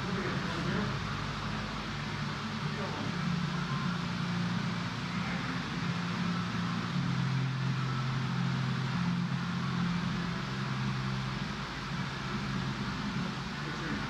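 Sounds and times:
low mechanical hum with hiss: 0.0s - 14.0s.

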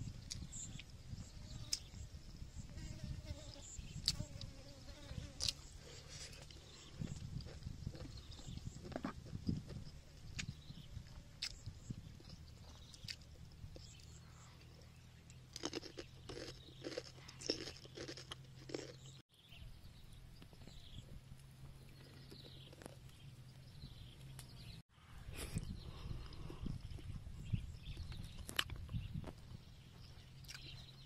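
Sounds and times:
boy chewing with wet smacking: 6.3s - 10.8s, 11.4s - 19.2s, 27.9s - 29.4s, 30.4s - 31.0s.

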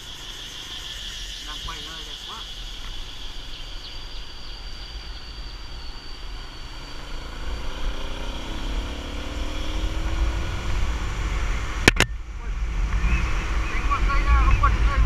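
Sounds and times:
wind rumble on microphone: 0.0s - 15.0s
motorbike engine revving: 6.1s - 14.0s.

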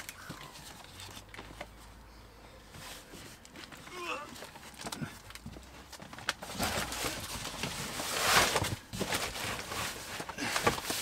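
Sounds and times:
cardboard rustling: 2.7s - 11.0s.

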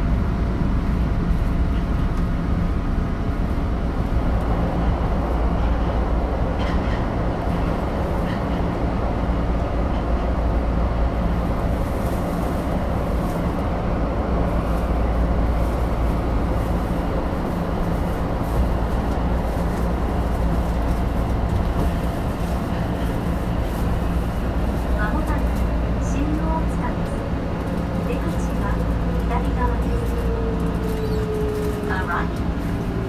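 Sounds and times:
wheels rumbling on rail: 0.0s - 33.0s.

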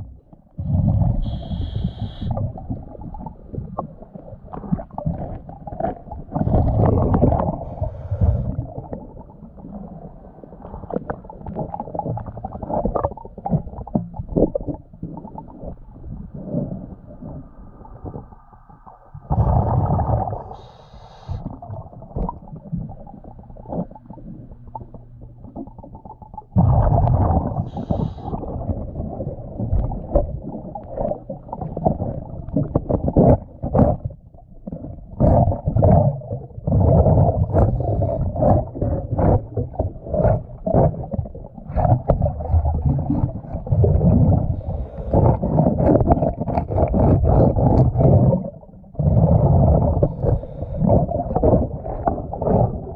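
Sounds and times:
exhaled bubbles rumbling: 0.0s - 52.9s
hull scrubbing underwater: 0.0s - 52.9s
diver regulator hiss: 1.2s - 2.3s, 20.6s - 21.5s, 27.7s - 28.4s.

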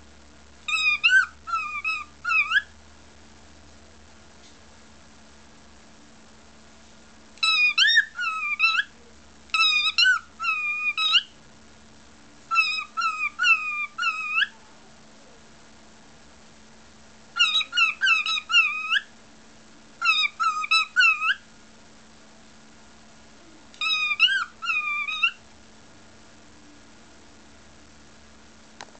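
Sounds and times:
cockatiel whistling: 0.7s - 2.7s, 7.4s - 8.9s, 9.5s - 11.3s, 12.5s - 14.6s, 17.4s - 19.1s, 20.0s - 21.4s, 23.8s - 25.4s.

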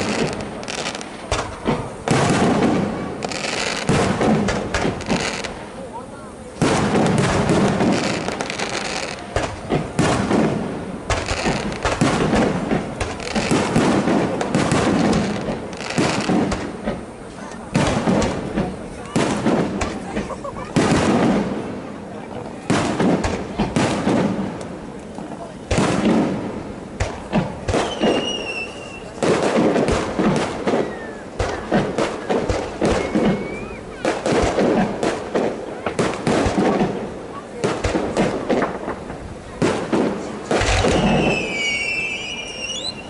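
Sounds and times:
fireworks bursting: 0.0s - 43.0s
high steady whistle: 27.8s - 29.1s, 32.9s - 33.8s, 40.8s - 43.0s.

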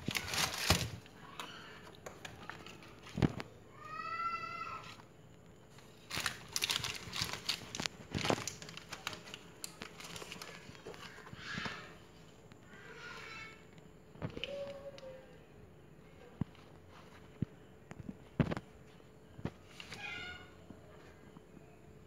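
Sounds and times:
tissue paper crinkling: 0.0s - 1.1s, 5.8s - 11.5s
plastic wrapping rustling: 0.0s - 1.6s, 5.7s - 11.8s.

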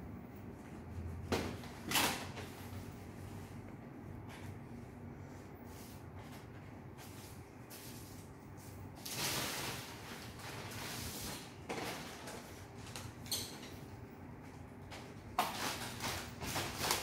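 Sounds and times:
plastic bag rustling: 8.9s - 12.8s, 15.4s - 17.0s.

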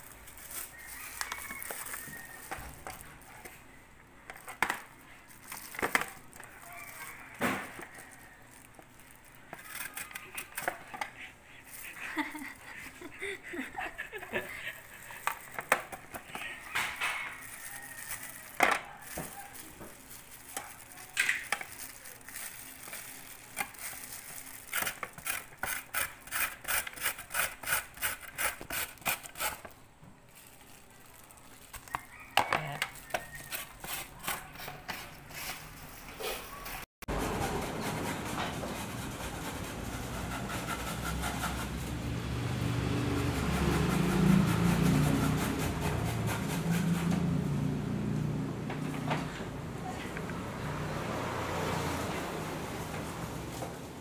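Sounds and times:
carrot scraping on a grater: 23.5s - 29.8s, 32.8s - 35.8s, 37.1s - 42.0s, 43.2s - 47.4s.

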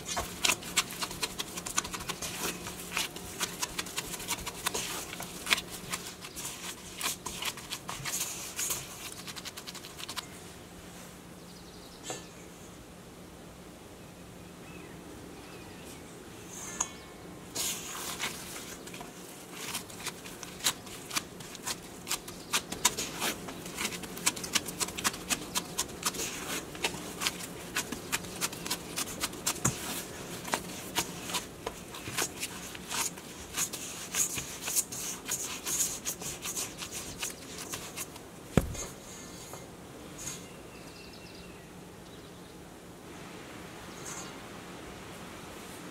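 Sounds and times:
dull thump: 38.5s - 38.9s.

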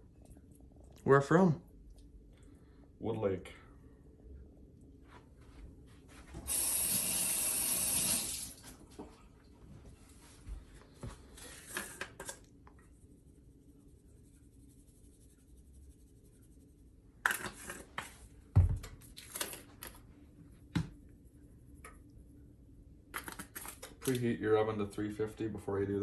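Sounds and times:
spice jars rattling: 23.1s - 24.2s.

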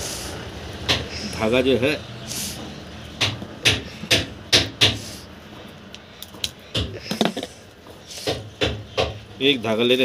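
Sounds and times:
objects knocking on a hard surface: 6.8s - 7.6s.

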